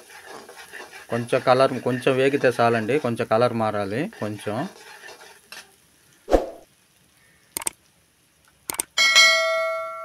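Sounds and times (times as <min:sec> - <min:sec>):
mouse clicks: 0:07.6 - 0:07.8, 0:08.7 - 0:08.9
bell-like chime: 0:09.0 - 0:10.0.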